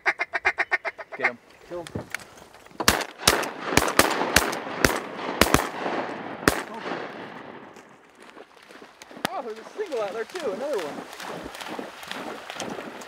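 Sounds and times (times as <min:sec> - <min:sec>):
shotgun blasts: 0:02.8 - 0:07.8
gunshot echo: 0:02.8 - 0:08.0.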